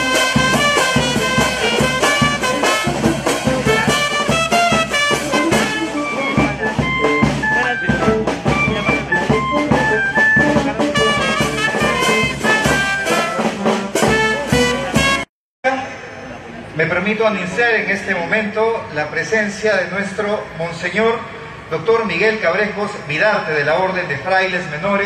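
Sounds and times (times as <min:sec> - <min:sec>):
brass band playing: 0:00.0 - 0:16.2.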